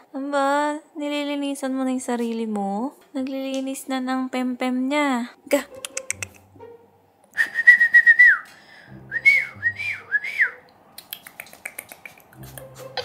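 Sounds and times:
person whistling: 7.4 - 10.6.

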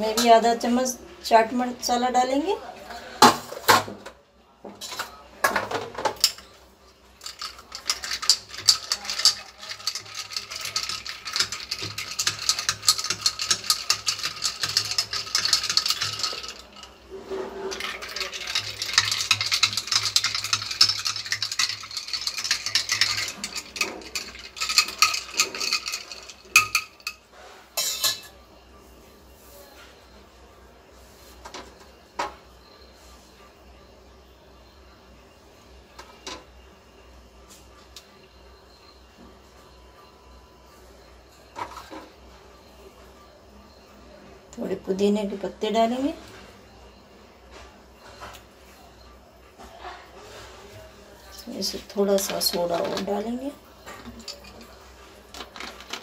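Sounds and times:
spoon clinking ice in a glass: 7.2 - 17.0, 17.7 - 27.2, 27.8 - 28.4, 52.0 - 54.8.

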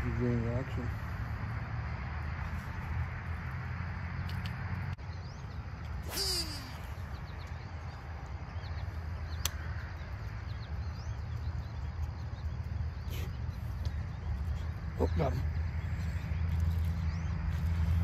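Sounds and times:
faint bird chirps: 5.0 - 18.0
sharp click: 9.4 - 9.6.

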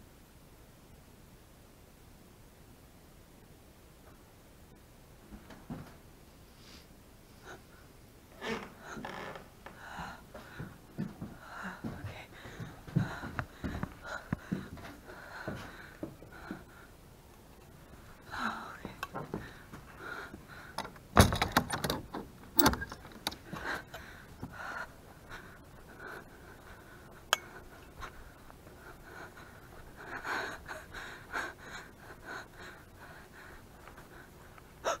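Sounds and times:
person breathing quickly: 6.5 - 17.2, 17.8 - 21.0, 23.0 - 35.0.

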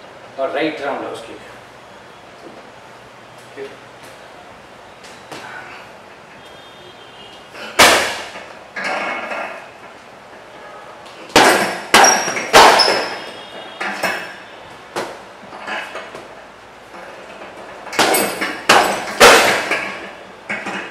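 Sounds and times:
punches and kicks on heavy bag: 7.7 - 8.4, 11.3 - 13.2, 17.9 - 20.0.

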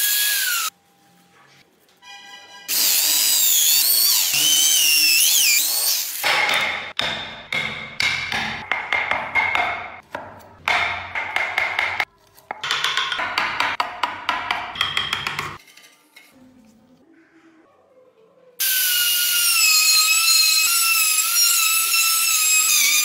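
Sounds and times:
electric drill whining into wood: 2.7 - 6.2
chisel knocking and scraping wood: 6.4 - 15.6.

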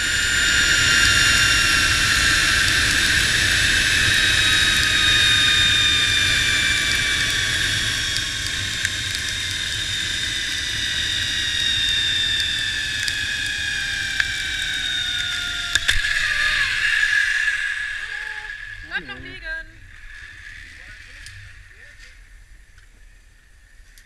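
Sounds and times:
wind rushing on camera: 0.0 - 24.0
zipline pulleys whining on cable: 0.0 - 24.0.

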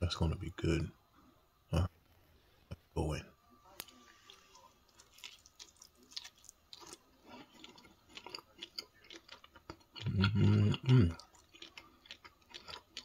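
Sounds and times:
man chewing crispy pizza: 3.8 - 13.0
man humming mmm: 10.0 - 11.2.

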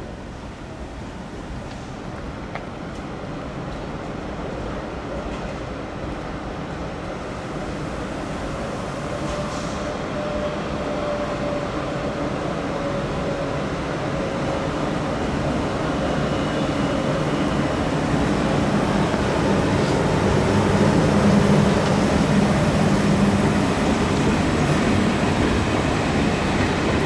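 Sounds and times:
electric train passing: 6.9 - 27.0.

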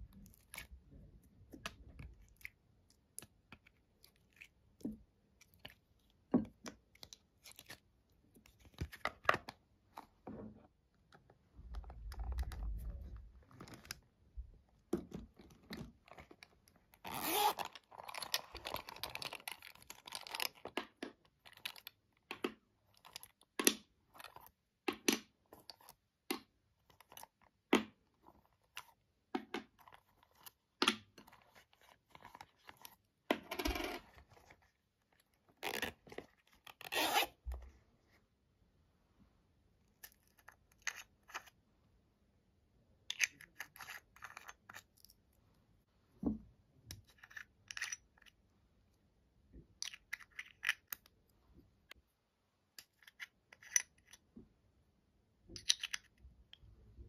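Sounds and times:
zipper pulled open: 17.0 - 17.8, 36.7 - 37.4.

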